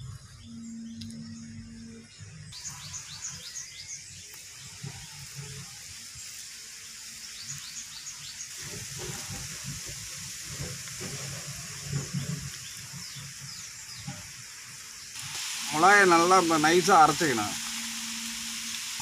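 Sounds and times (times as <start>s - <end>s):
birds chirping: 0.0s - 5.5s
steady watery hiss: 2.5s - 19.0s.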